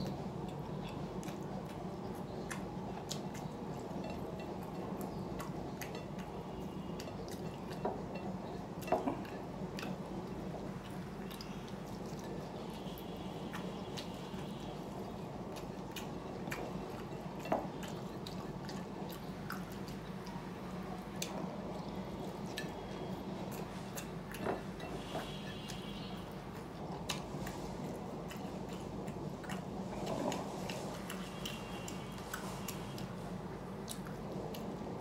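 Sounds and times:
person chewing food: 0.0 - 35.0
steady low hum: 0.0 - 35.0.

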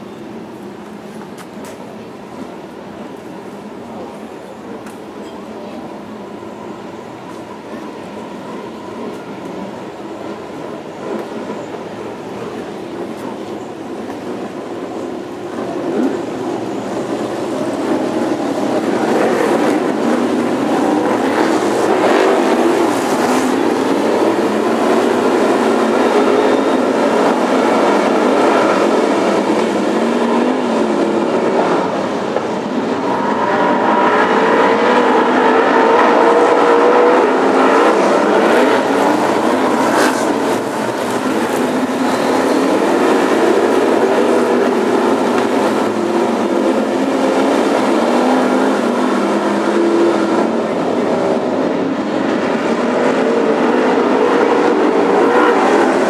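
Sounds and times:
stock car engines racing: 15.7 - 56.0.

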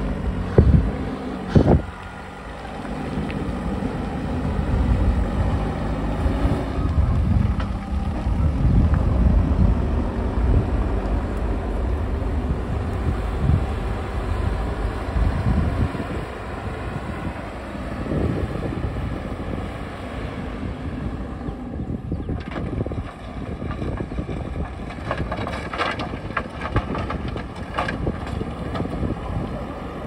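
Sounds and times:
diesel engine running: 0.0 - 30.0
sharp knocks and scrapes: 22.3 - 29.0.

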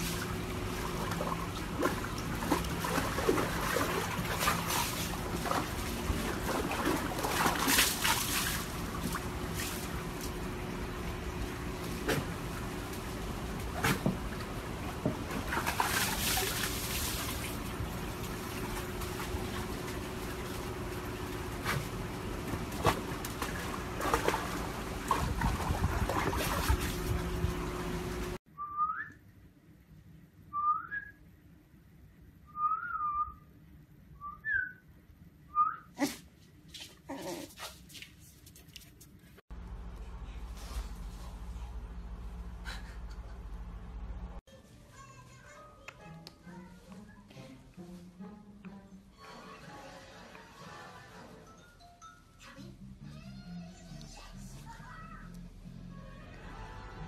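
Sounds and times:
water sloshing and splashing: 0.0 - 28.4.

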